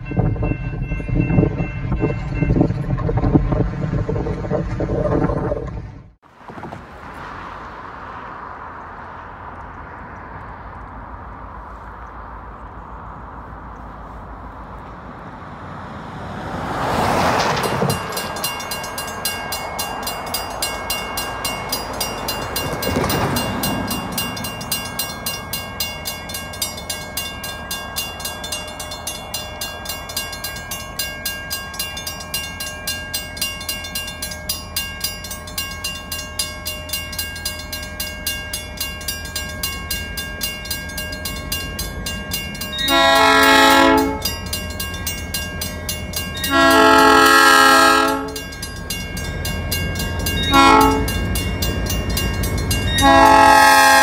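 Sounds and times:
crossing bell ringing: 0.0 - 2.9, 16.6 - 54.0
road vehicles passing: 0.0 - 54.0
train horn blast: 42.8 - 44.3, 46.4 - 48.4, 50.5 - 51.2, 53.0 - 54.0.

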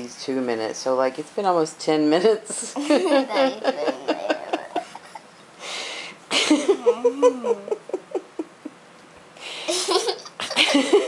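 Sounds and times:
person laughing softly: 2.8 - 5.3, 6.3 - 8.8, 9.6 - 11.0.

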